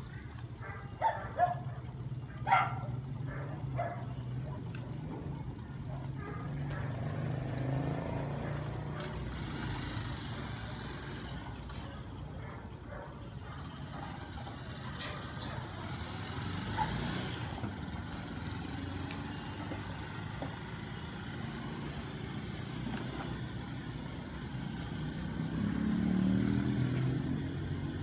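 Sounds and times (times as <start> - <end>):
vehicle engines rumbling: 0.0 - 28.0.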